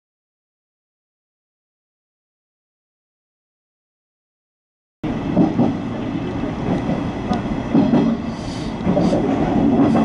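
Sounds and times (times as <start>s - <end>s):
train running rumble: 5.0s - 10.0s
brief hisses: 8.3s - 9.2s.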